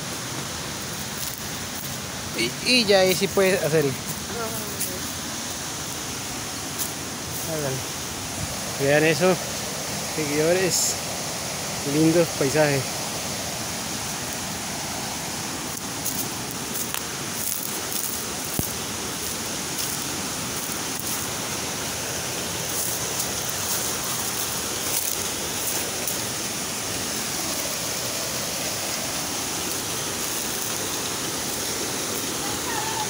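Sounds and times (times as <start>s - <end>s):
stream rushing over boulders: 0.0s - 33.0s
footsteps through leaf litter: 3.0s - 5.2s, 15.8s - 26.4s.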